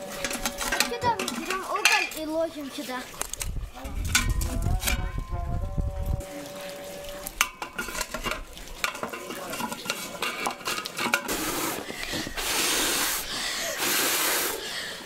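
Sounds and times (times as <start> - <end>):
metal clinking and scraping: 0.0 - 2.4, 7.4 - 11.9.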